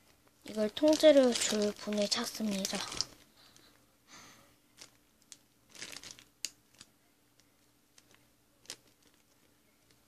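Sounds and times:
plastic bag crinkling: 0:00.4 - 0:03.8, 0:04.8 - 0:10.0.

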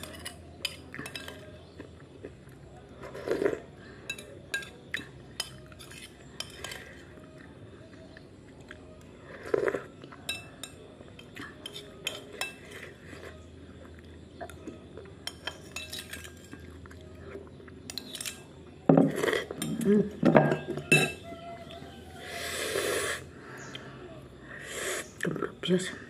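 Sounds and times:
metal spoon scraping ceramic plate: 0:00.0 - 0:01.5, 0:05.4 - 0:07.1, 0:17.9 - 0:21.3.

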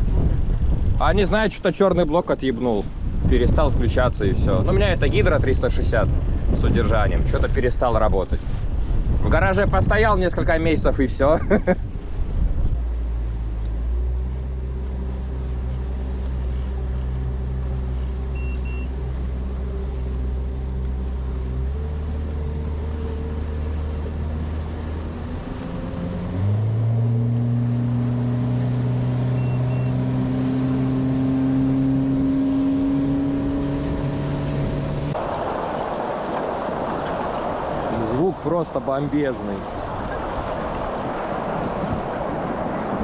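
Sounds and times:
wind and water rushing: 0:00.0 - 0:43.0
outboard motor running: 0:11.8 - 0:38.5
short double beeps: 0:18.3 - 0:19.0, 0:29.3 - 0:30.0.

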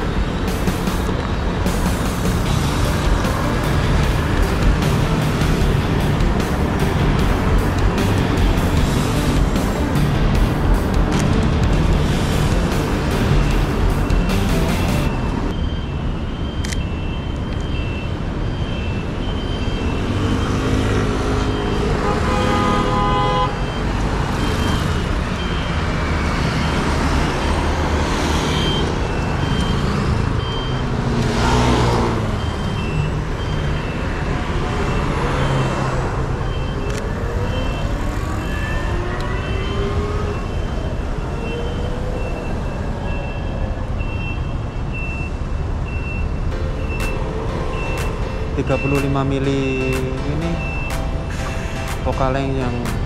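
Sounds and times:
road traffic passing: 0:00.0 - 0:53.0
high electronic beep: 0:13.1 - 0:21.9, 0:26.6 - 0:31.0, 0:32.2 - 0:53.0.

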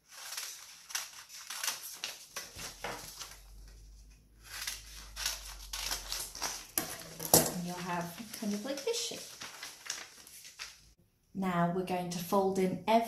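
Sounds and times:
paper crinkling and rustling: 0:00.0 - 0:11.0
scissors snipping paper: 0:00.2 - 0:03.4, 0:04.5 - 0:10.8.

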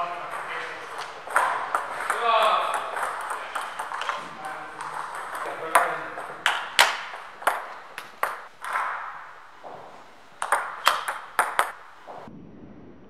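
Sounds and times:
table tennis ball clicking: 0:00.0 - 0:12.3.

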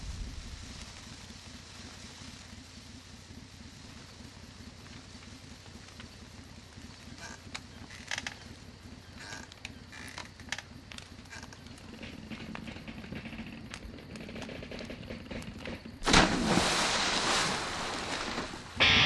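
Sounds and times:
loud music: 0:18.8 - 0:19.0.

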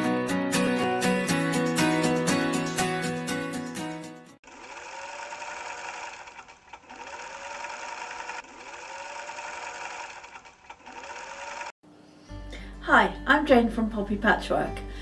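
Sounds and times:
electric sewing machine stitching: 0:04.4 - 0:11.8.

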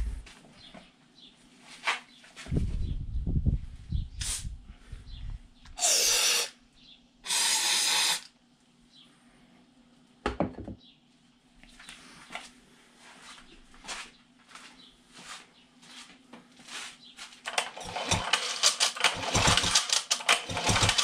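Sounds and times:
aerosol can spraying: 0:05.8 - 0:06.5, 0:07.3 - 0:08.3.

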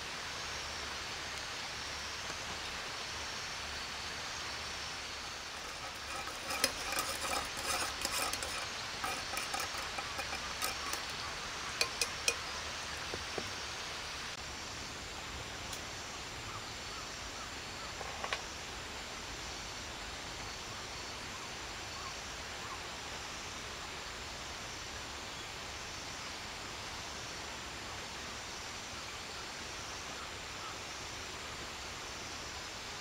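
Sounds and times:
steady background hiss: 0:00.0 - 0:05.9, 0:11.2 - 0:33.0
spoon clinking in metal mug: 0:05.6 - 0:12.6.

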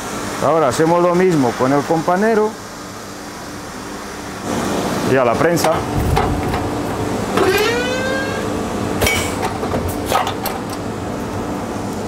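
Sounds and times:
workshop machinery humming: 0:00.0 - 0:12.0
short rising whine: 0:07.2 - 0:08.9.

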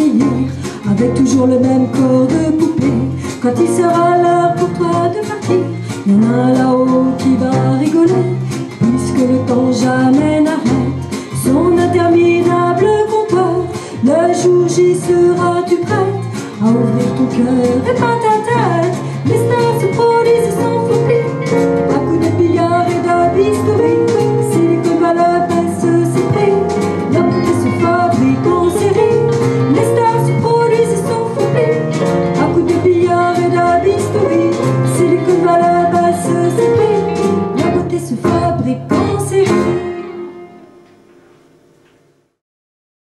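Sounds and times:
piano playing: 0:00.0 - 0:42.2.

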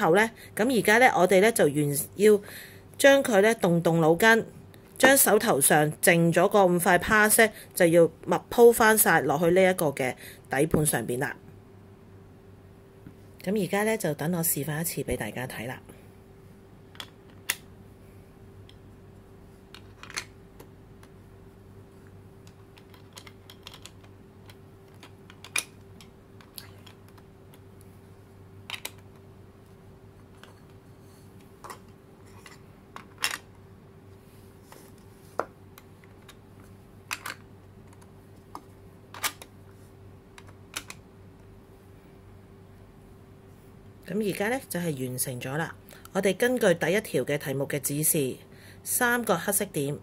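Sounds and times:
faint steady hum: 0:00.0 - 0:50.0
plastic puzzle pieces clicking: 0:22.4 - 0:27.6, 0:28.7 - 0:29.2.

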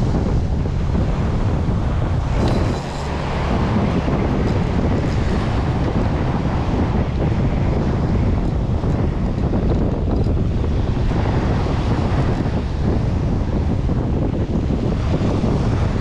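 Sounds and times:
surf breaking on beach: 0:00.0 - 0:16.0
wind buffeting microphone: 0:00.0 - 0:16.0.

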